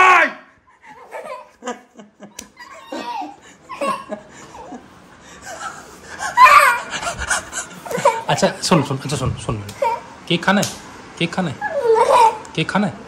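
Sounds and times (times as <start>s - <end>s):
toddler laughing and giggling: 0.8s - 8.5s, 9.7s - 10.1s, 11.6s - 12.4s
toddler squealing: 6.4s - 6.9s, 11.6s - 12.4s.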